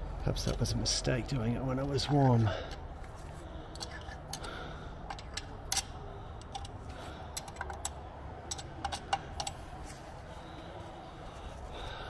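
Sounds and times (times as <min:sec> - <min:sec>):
screwdriver clicking and scraping metal: 0:03.7 - 0:04.4, 0:05.1 - 0:10.1.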